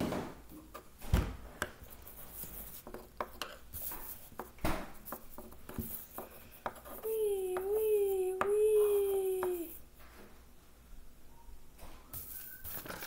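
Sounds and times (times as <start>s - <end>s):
pencil scratching on paper: 1.9s - 9.8s.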